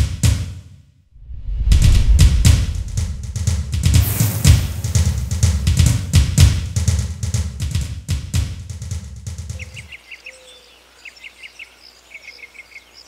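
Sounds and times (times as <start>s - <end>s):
drum-heavy title music: 1.2s - 9.7s
faint bird chirps: 9.5s - 13.0s.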